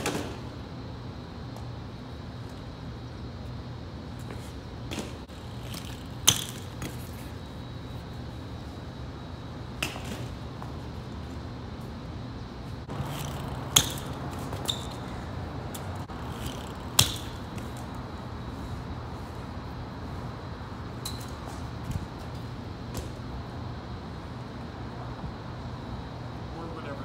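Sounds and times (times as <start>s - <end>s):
bike clattering on pavement: 4.2s - 7.4s, 12.9s - 18.0s, 21.0s - 23.2s.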